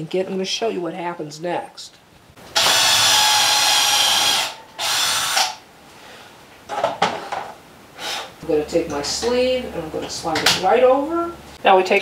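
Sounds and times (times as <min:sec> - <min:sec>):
cordless drill boring into wood: 0:02.6 - 0:05.6.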